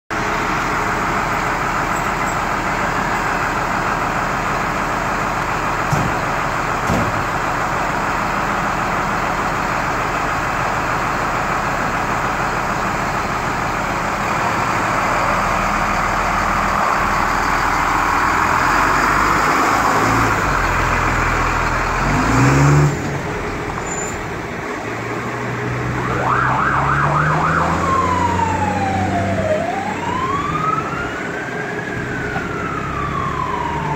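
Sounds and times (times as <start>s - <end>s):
diesel engines rumbling: 0.1s - 33.9s
engine revving: 17.6s - 23.8s, 24.9s - 31.0s
siren wail: 25.8s - 33.9s
siren yelp: 25.8s - 33.9s.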